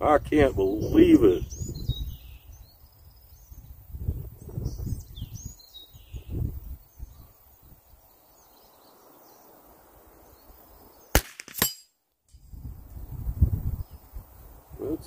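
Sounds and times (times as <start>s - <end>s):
wind buffeting microphone: 0.0s - 8.1s, 12.4s - 15.0s
birds chirping: 0.5s - 11.7s
rifle shots: 11.2s - 11.8s.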